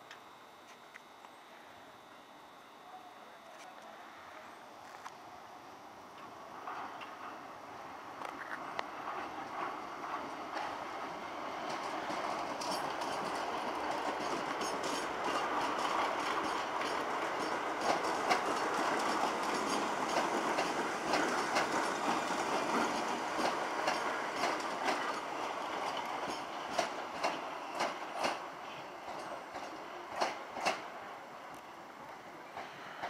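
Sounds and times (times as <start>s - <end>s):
train wheels rumbling on rail: 6.1s - 33.0s
wheels clacking over rail joints: 6.2s - 31.1s.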